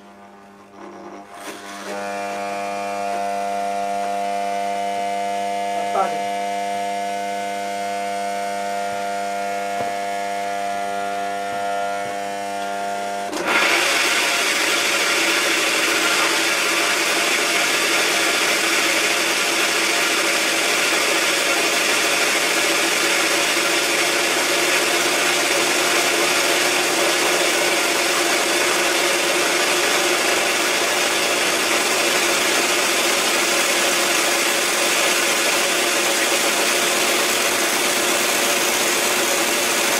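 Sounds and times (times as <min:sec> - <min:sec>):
mower motor and fan whirring: 0:00.6 - 0:04.4, 0:08.6 - 0:39.9.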